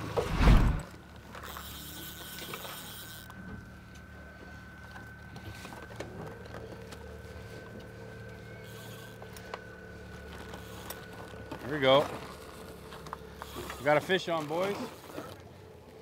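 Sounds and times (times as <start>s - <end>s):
rising tone: 0.0s - 0.9s
outboard motor running: 0.0s - 16.0s.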